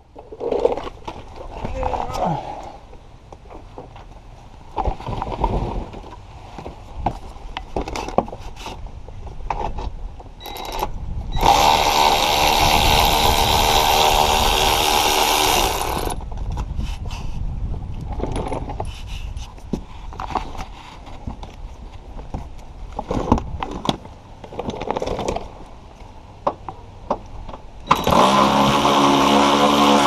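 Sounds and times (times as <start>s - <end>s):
electric ratchet running: 10.5s - 16.2s, 27.9s - 30.0s.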